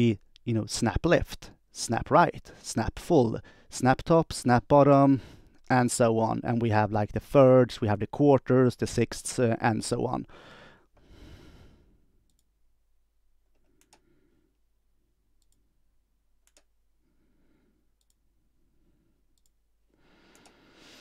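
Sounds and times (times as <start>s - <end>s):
soft breathing: 10.3s - 12.2s, 13.6s - 14.6s, 17.0s - 18.0s, 19.9s - 21.0s
faint sharp clicks: 20.3s - 20.6s.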